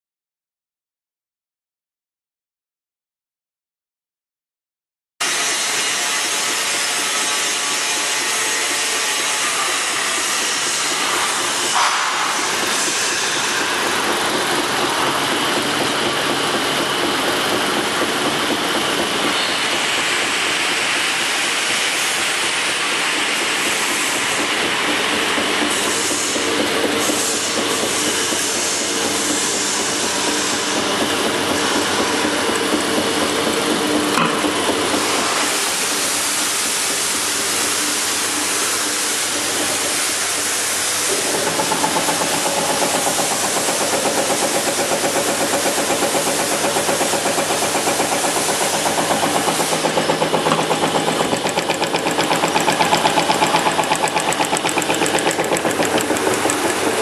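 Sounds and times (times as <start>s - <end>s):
machine hum and hiss: 5.2s - 57.0s
fast regular pulsing of cutter ram: 39.2s - 57.0s.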